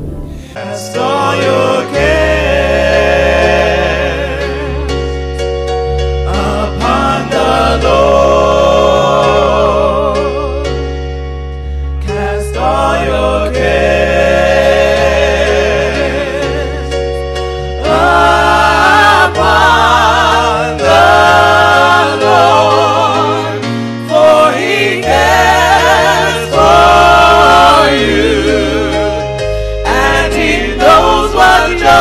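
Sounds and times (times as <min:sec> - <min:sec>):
steady low bass: 0:00.0 - 0:01.2
gospel voices singing: 0:00.3 - 0:32.0.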